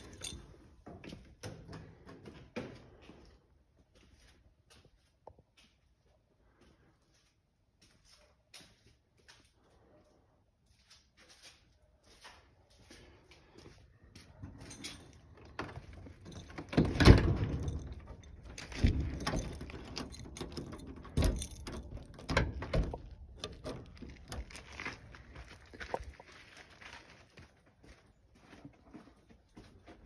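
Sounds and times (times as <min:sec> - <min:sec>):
footsteps on stone and gravel: 0:10.6 - 0:16.9, 0:23.0 - 0:30.0.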